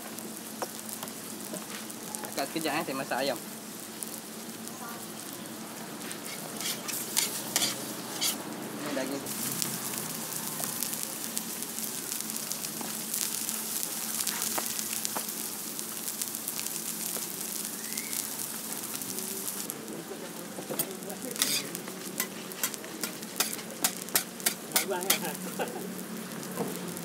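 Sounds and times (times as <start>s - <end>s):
food sizzling on griddle: 0.0s - 27.0s
spatula clicking on griddle: 6.3s - 8.4s, 21.4s - 25.4s.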